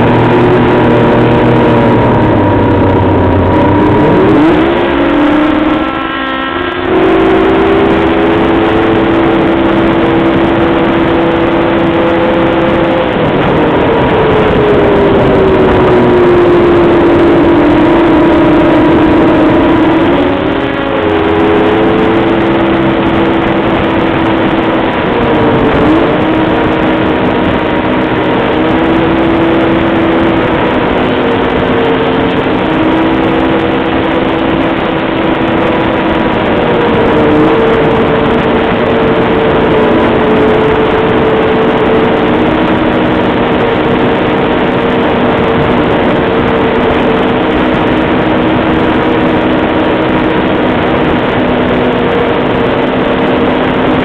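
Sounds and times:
snowmobile engine whining: 0:00.0 - 0:54.0
track and snow rushing: 0:00.0 - 0:54.0.

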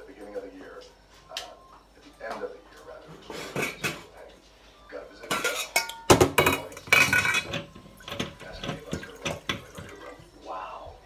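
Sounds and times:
metal kitchenware clanking: 0:03.2 - 0:04.1, 0:05.2 - 0:10.2.

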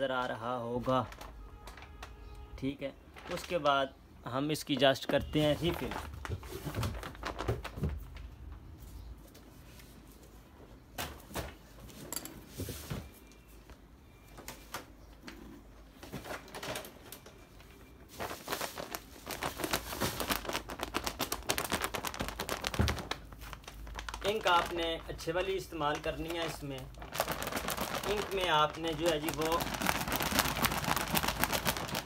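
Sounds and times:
crinkly rustling: 0:00.6 - 0:02.4, 0:03.1 - 0:03.9, 0:04.6 - 0:10.4, 0:15.9 - 0:32.0.

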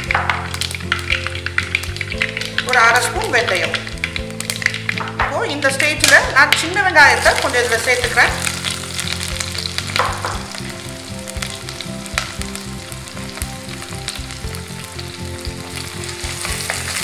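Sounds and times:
onions sizzling in oil: 0:00.0 - 0:17.0.

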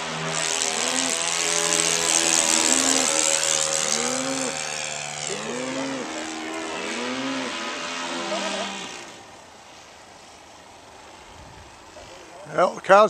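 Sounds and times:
cows mooing: 0:00.0 - 0:09.2
model plane engine overhead: 0:00.0 - 0:13.0.

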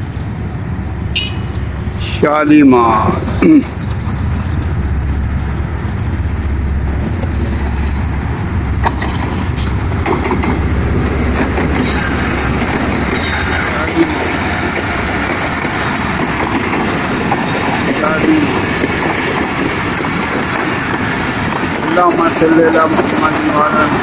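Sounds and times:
diesel locomotive rumble: 0:00.0 - 0:24.0
train wheels rolling: 0:00.4 - 0:24.0.

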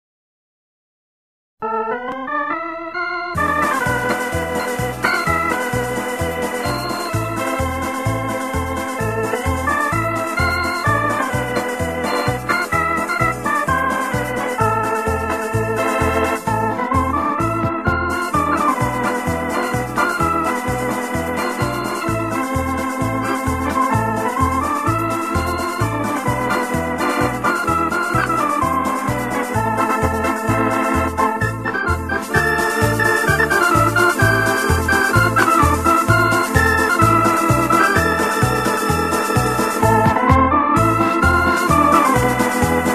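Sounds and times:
electronic organ music: 0:01.6 - 0:42.9
repeating bass beat: 0:03.4 - 0:42.9.

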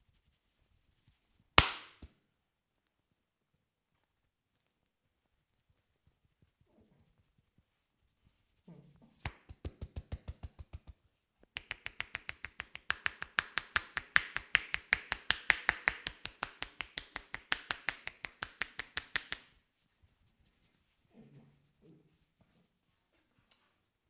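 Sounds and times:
hands slapping in rhythm: 0:01.6 - 0:02.2, 0:09.2 - 0:19.6.

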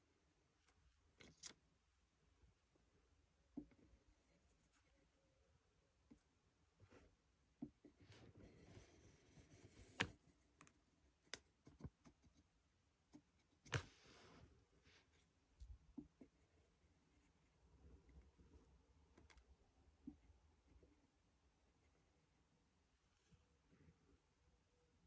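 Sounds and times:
pen scratching on paper: 0:07.9 - 0:10.7.

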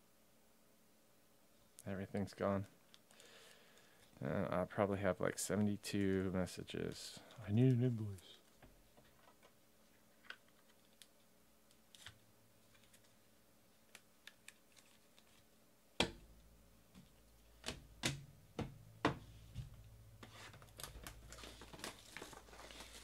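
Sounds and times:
cards and boxes knocking on table: 0:17.7 - 0:19.7.

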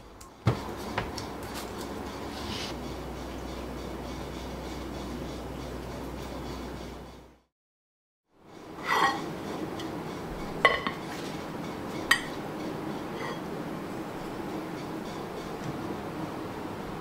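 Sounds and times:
metal mould scraping on stone: 0:08.8 - 0:09.3, 0:13.2 - 0:13.4.

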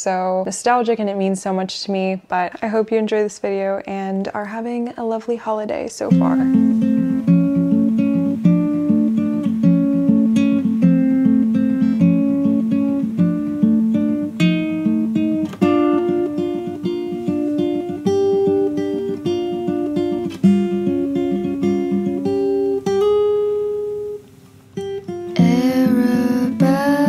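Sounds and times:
acoustic guitar plucking: 0:06.1 - 0:27.0.

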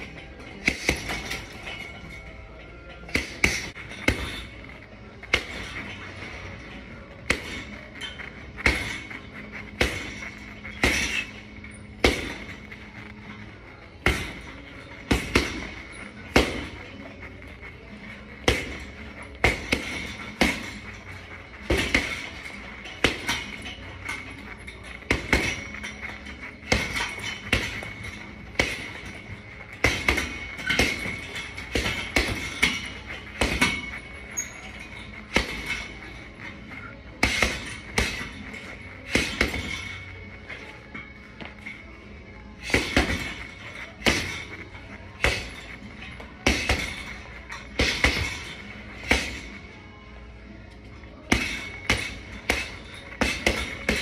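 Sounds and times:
punches thudding on heavy bag: 0:08.6 - 0:11.4, 0:12.0 - 0:12.8, 0:14.0 - 0:16.9, 0:18.4 - 0:21.0, 0:25.0 - 0:34.0, 0:37.2 - 0:40.0, 0:42.6 - 0:44.6, 0:45.2 - 0:45.8, 0:46.4 - 0:49.5, 0:51.3 - 0:54.0.

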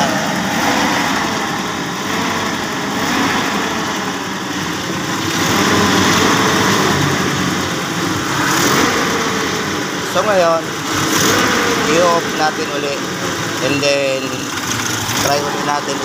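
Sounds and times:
car engine idling: 0:00.0 - 0:16.0.

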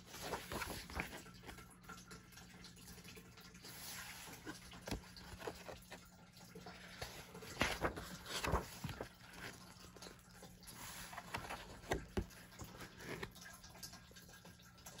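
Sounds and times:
paper pages rustling: 0:00.0 - 0:01.7, 0:03.7 - 0:06.0, 0:06.8 - 0:13.4.

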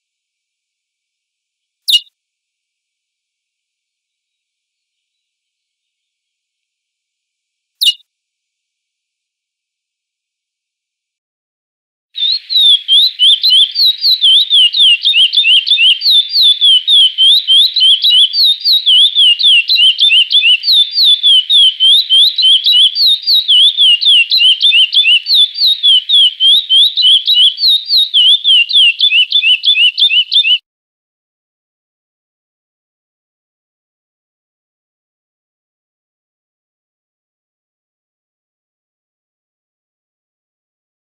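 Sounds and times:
finch singing whistled notes: 0:01.9 - 0:02.1, 0:07.8 - 0:08.0, 0:12.2 - 0:30.6.

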